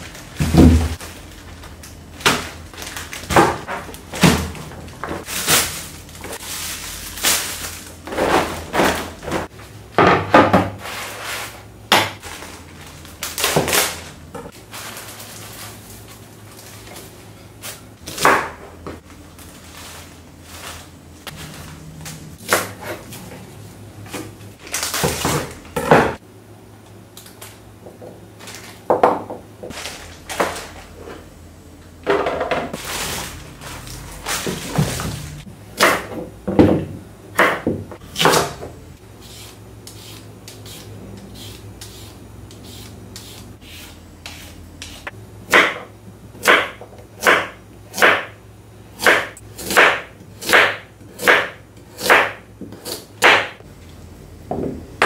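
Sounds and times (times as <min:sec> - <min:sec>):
faint steady hum: 0:11.0 - 0:55.0
sharp chopping strokes: 0:49.0 - 0:53.6.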